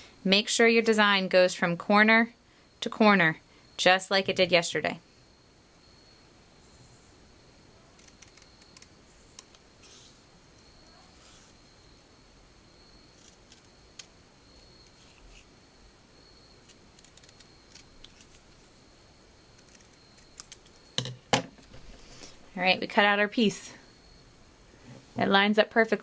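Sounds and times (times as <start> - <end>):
scissors snipping paper: 16.7 - 18.6.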